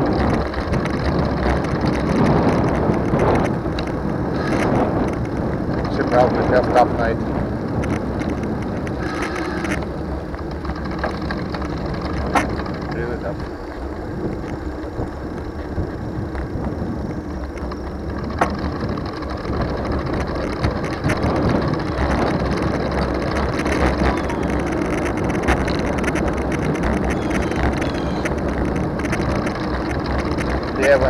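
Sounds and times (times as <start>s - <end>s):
bicycle tyres rolling: 0.0s - 31.0s
sharp clicks: 20.1s - 30.8s.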